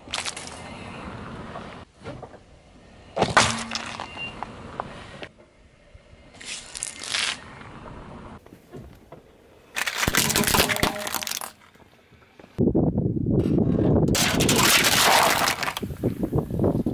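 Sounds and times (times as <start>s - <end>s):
plastic toys crunching under tyre: 9.7s - 11.8s, 14.1s - 16.0s.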